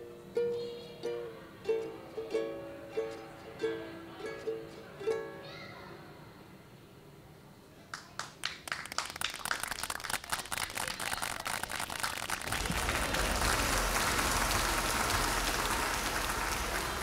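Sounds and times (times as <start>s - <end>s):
ukulele strumming chords: 0.0s - 5.4s
audience applause: 8.2s - 17.0s.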